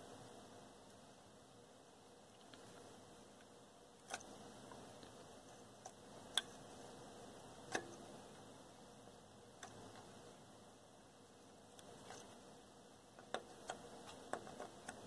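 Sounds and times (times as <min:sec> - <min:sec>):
low background hiss: 0:00.0 - 0:15.0
soldering iron clicks and ticks: 0:07.6 - 0:08.0, 0:09.6 - 0:10.1.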